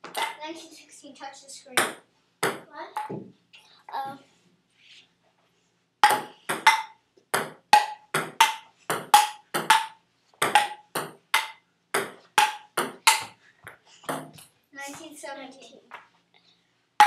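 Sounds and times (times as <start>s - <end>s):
ping-pong ball clicks: 6.0s - 13.3s.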